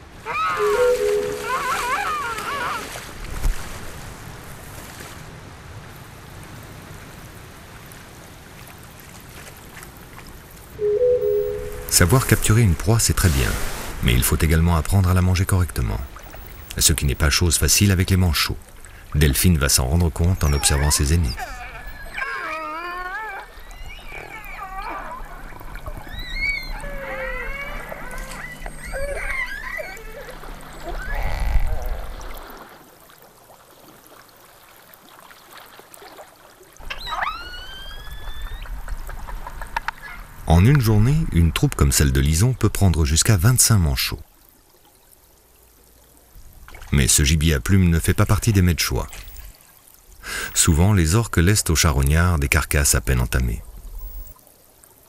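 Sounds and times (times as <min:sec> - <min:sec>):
sea water splashing: 0:00.0 - 0:43.2, 0:44.2 - 0:55.0
killer whales calling underwater: 0:00.1 - 0:03.0, 0:10.8 - 0:12.4, 0:19.3 - 0:32.5, 0:36.8 - 0:40.8
warbling high sounds: 0:00.5 - 0:02.1, 0:10.8 - 0:12.5
held steady tones: 0:00.6 - 0:01.8, 0:10.8 - 0:12.2
low steady hum: 0:10.8 - 0:13.1.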